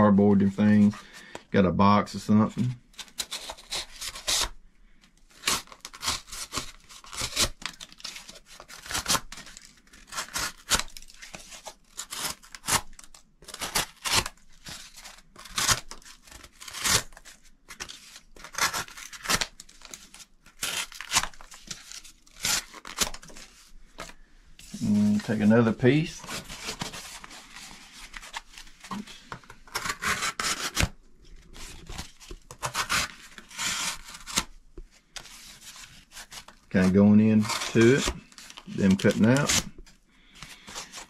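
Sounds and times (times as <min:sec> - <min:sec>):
knife slicing cardboard: 0:05.4 - 0:19.9, 0:26.2 - 0:30.9, 0:31.6 - 0:34.5.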